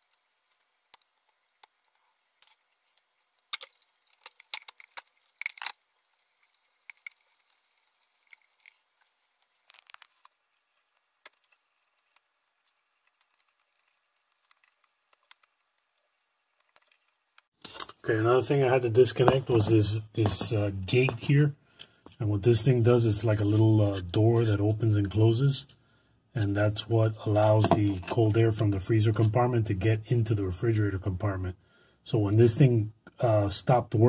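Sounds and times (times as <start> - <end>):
wire connectors clicking: 3.4 - 5.8.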